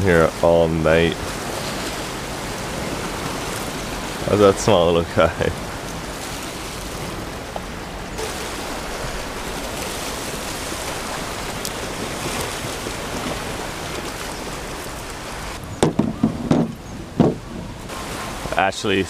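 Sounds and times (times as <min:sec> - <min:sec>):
surf washing against rocks: 0:00.0 - 0:19.0
loud knocks and rustles: 0:15.8 - 0:17.9.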